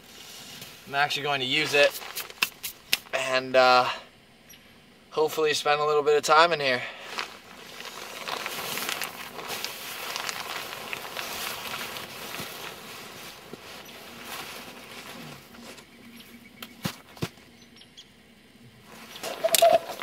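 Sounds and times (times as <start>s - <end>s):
snow crunching: 0.0s - 3.1s, 7.0s - 15.9s
nylon jacket rustling: 7.0s - 15.8s.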